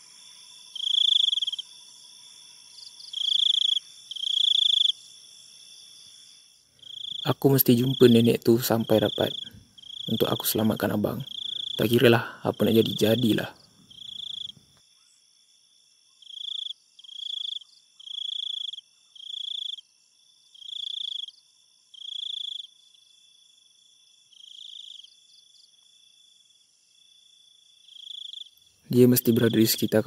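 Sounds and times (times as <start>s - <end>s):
faint high hiss: 0.0s - 4.2s
crickets chirping: 0.0s - 30.0s.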